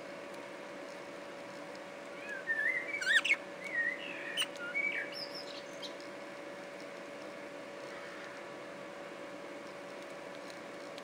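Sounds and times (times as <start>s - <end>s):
budgerigar warbling: 2.6s - 3.4s.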